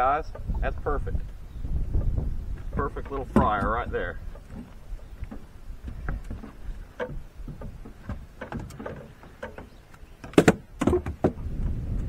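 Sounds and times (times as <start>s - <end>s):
sharp knocks: 2.0s - 11.4s
fish knocking and rattling: 2.0s - 11.5s.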